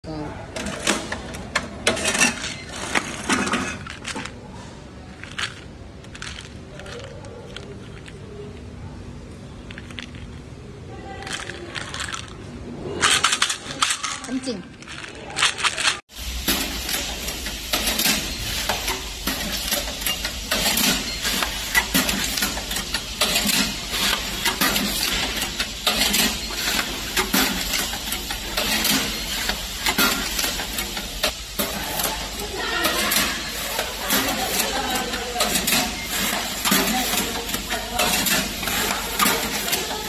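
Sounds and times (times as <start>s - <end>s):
banding machine clicks and clatters: 13.0s - 40.0s.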